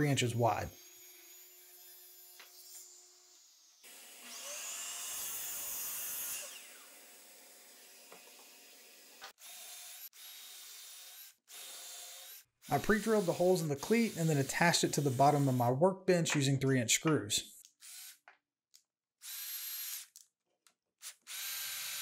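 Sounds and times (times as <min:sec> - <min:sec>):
miter saw cutting wood: 0:00.7 - 0:10.1, 0:11.7 - 0:15.7
cordless drill boring into wood: 0:03.7 - 0:15.7, 0:17.8 - 0:18.2, 0:19.2 - 0:20.2, 0:21.0 - 0:22.0.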